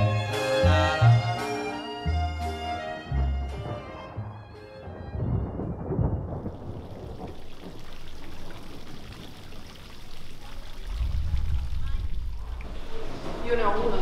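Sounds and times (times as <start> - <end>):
orchestral music: 0.0 - 6.7
thunder rumble: 4.8 - 14.0
rain hiss: 6.0 - 14.0.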